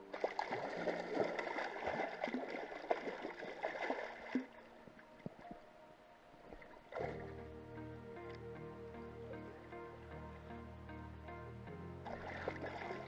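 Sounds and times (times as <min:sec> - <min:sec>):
fish thrashing and splashing: 0:00.1 - 0:04.6.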